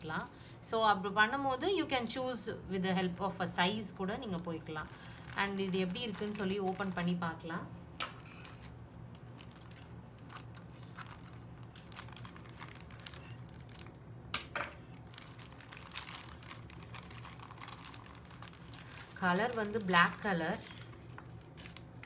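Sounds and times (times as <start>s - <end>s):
plastic packaging crinkling: 4.0s - 7.4s, 8.2s - 22.0s.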